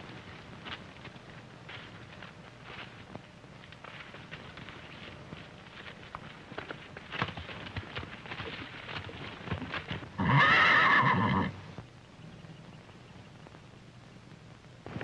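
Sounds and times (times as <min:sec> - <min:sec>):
horse hooves clopping: 0:00.0 - 0:13.7
horse whinny: 0:10.2 - 0:11.6.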